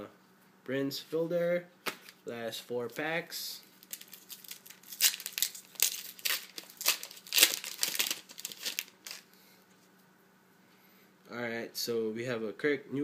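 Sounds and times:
wrapper crinkling and tearing: 0:03.8 - 0:09.3.

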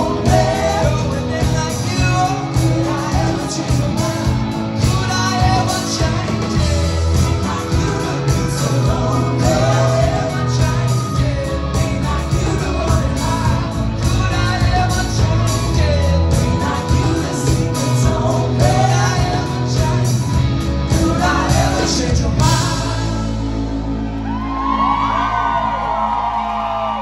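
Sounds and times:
lead singer singing: 0:00.0 - 0:24.0
live rock band playing: 0:00.0 - 0:26.3
crowd whooping: 0:22.6 - 0:27.0.

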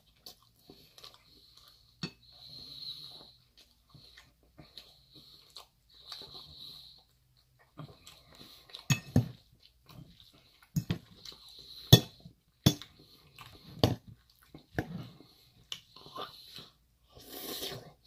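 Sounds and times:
person chewing salad: 0:00.0 - 0:18.0
fork clinking against bowl: 0:08.9 - 0:09.2.

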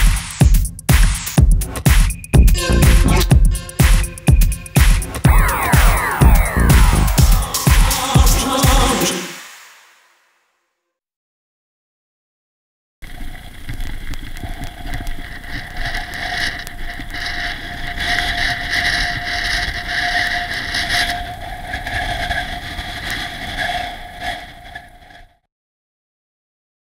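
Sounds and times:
steady whine: 0:00.0 - 0:10.0.

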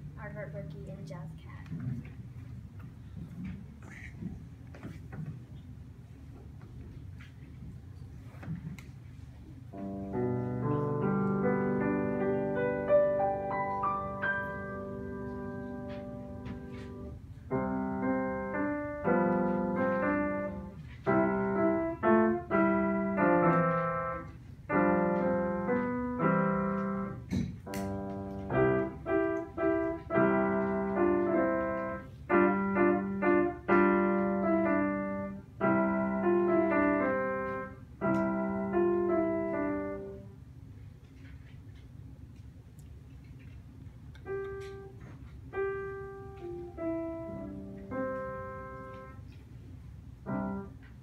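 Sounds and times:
solo piano chords: 0:09.7 - 0:40.4, 0:44.2 - 0:49.3, 0:50.2 - 0:51.0.

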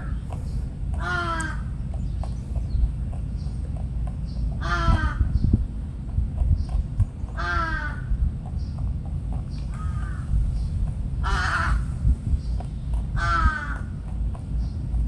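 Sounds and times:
bird harsh calls: 0:00.0 - 0:02.8, 0:04.2 - 0:05.6, 0:06.6 - 0:08.8, 0:09.5 - 0:14.0
steady low rumble: 0:00.0 - 0:15.0.

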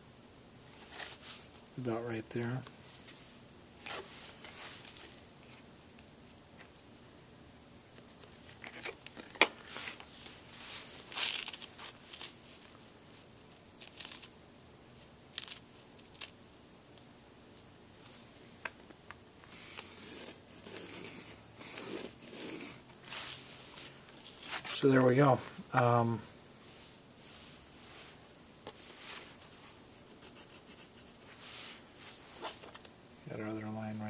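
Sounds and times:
pencil scratching along ruler: 0:19.5 - 0:22.9.

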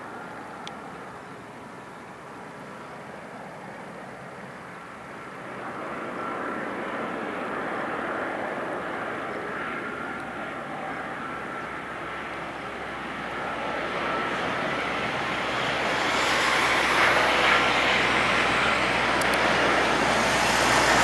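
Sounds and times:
jet airliner engines rushing: 0:02.3 - 0:21.0.

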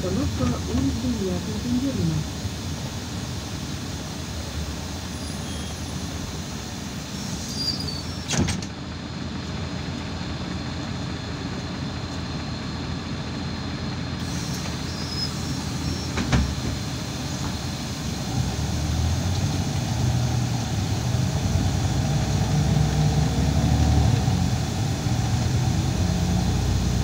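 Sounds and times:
bus engine and road noise: 0:00.0 - 0:27.0
faint squeaks of bus body: 0:05.1 - 0:06.2, 0:07.1 - 0:08.6, 0:14.4 - 0:16.6.

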